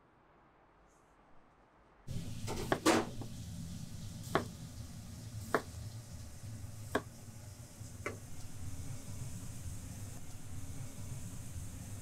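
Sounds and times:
steady low hum: 0.8s - 12.0s
knife slicing radish: 2.3s - 3.3s.

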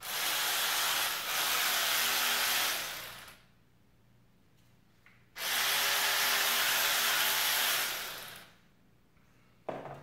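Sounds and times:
electric ratchet motor whirring: 0.0s - 3.4s, 5.4s - 8.5s
knock: 9.7s - 10.0s.

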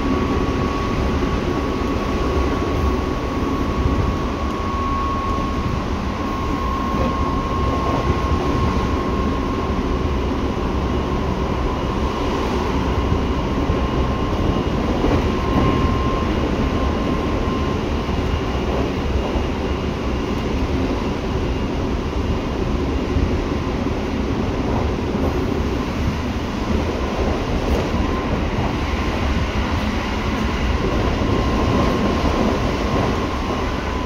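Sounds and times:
steady high tone: 0.0s - 20.3s
train wheels rumbling on rail: 0.0s - 34.0s.

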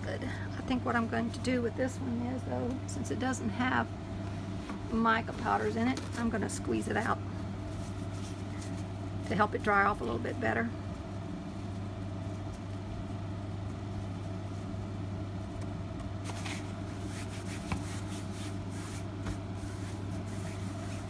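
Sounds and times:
wet silk rustling: 7.5s - 9.0s.

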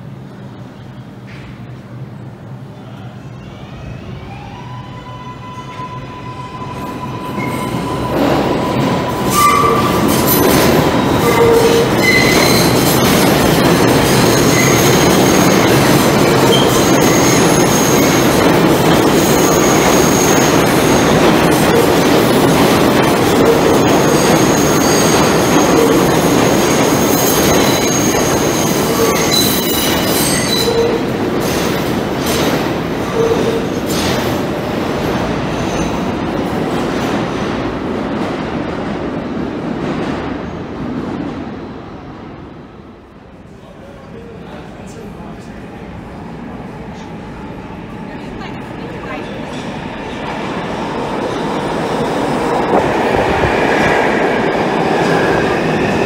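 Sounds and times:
train wheels rumbling on rail: 5.6s - 56.0s
high-pitched wheel squeal: 6.3s - 10.4s, 11.2s - 12.8s, 14.3s - 15.4s.

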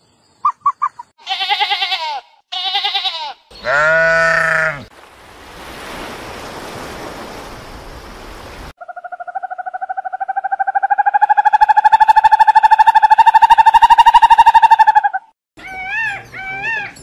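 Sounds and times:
owl trilling call: 8.8s - 17.0s.

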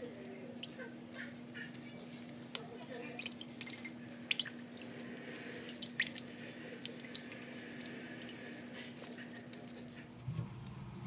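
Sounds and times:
water dripping into a bowl: 2.5s - 8.4s.

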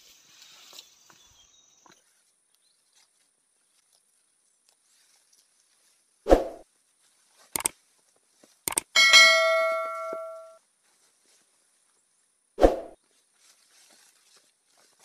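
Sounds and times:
quick mouse clicks: 8.7s - 8.9s
notification bell ding: 9.0s - 10.6s.

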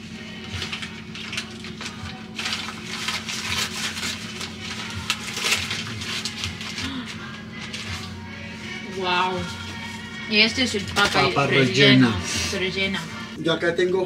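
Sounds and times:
paper bag crinkling: 0.2s - 8.5s.

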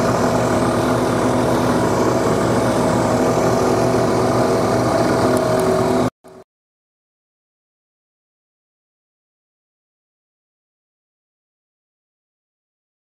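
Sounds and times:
abrasive saw cutting steel: 0.0s - 6.1s.

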